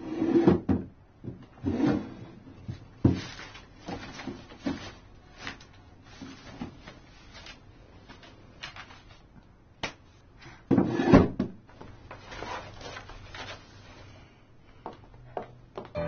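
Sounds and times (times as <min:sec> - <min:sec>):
papers rustling: 0:03.1 - 0:09.3, 0:11.8 - 0:14.2.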